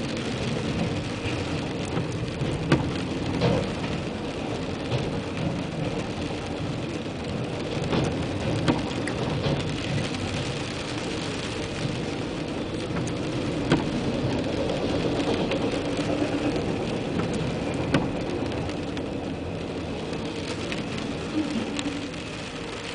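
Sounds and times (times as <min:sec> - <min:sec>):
freight train rolling past: 0:00.0 - 0:22.9
rain pattering on car roof: 0:00.0 - 0:22.9.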